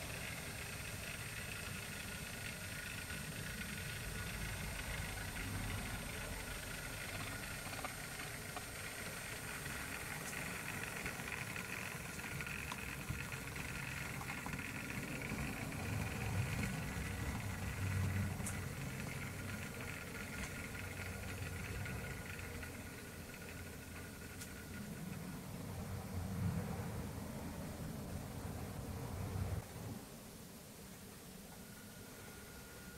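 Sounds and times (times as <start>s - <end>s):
model train rumbling with hiss: 0.0s - 30.1s.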